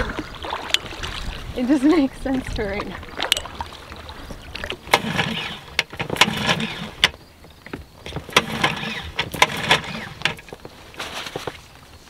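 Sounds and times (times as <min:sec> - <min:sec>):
outboard engine turning over: 0:00.0 - 0:11.6
recoil starter yanks: 0:04.8 - 0:07.2, 0:08.0 - 0:11.1.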